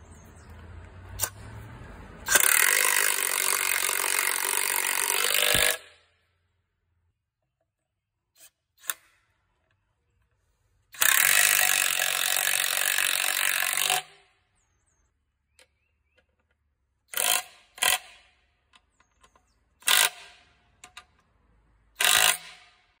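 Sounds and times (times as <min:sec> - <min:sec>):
impact wrench hammering bolt: 0:02.3 - 0:06.1, 0:16.2 - 0:21.3, 0:22.0 - 0:22.9.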